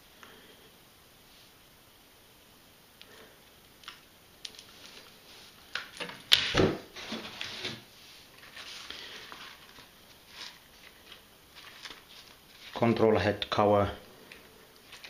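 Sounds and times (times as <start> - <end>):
soft rustling: 4.5 - 5.7, 7.0 - 13.2.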